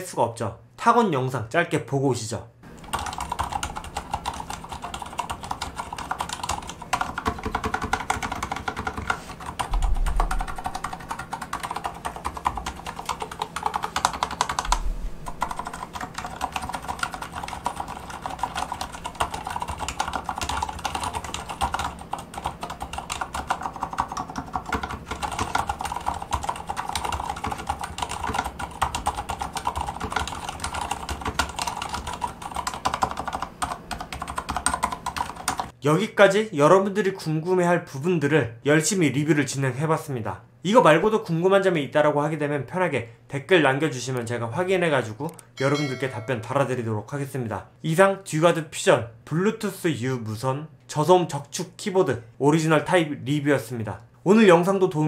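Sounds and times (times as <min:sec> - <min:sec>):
fast mechanical keyboard typing: 0:02.8 - 0:35.8.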